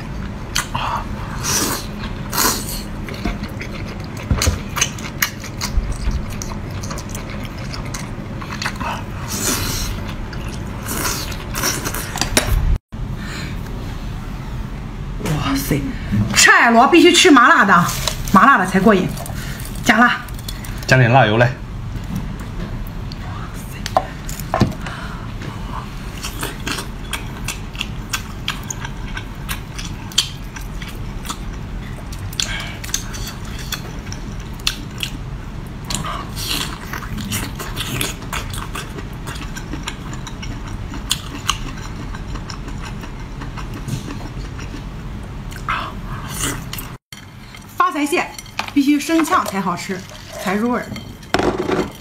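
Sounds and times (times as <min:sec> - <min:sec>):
low steady hum: 0:00.0 - 0:52.0
close-miked chewing: 0:01.8 - 0:12.2, 0:26.2 - 0:35.2, 0:35.8 - 0:47.7.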